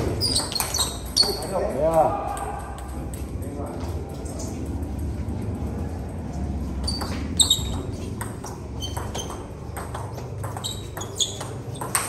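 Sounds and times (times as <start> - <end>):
table tennis ball tapping: 0.1 - 3.3, 6.8 - 12.0.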